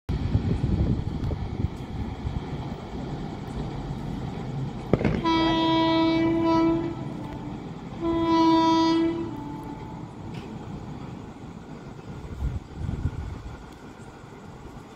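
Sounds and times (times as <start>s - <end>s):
low rumble of approaching train: 0.1s - 14.9s
locomotive horn blasts: 5.0s - 10.2s.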